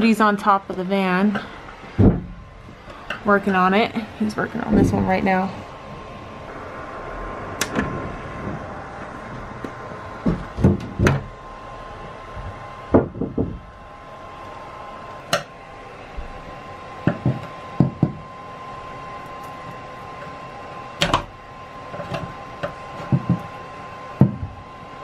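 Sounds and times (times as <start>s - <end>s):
knocks on metal roof: 2.0s - 2.4s, 10.2s - 11.3s, 12.9s - 13.6s, 17.0s - 18.2s, 23.0s - 23.5s, 24.2s - 24.6s.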